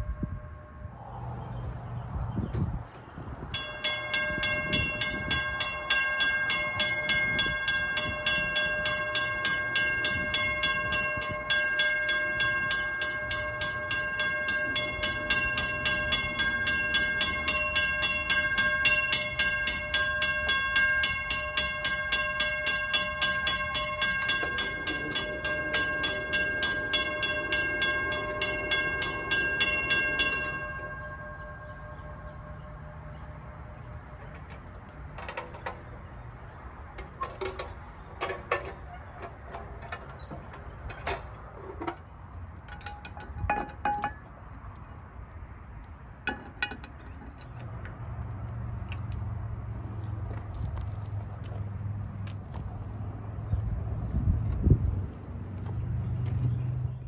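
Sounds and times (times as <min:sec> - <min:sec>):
railroad crossing bell ringing: 0:00.0 - 0:01.6, 0:03.5 - 0:35.9, 0:42.6 - 0:44.3.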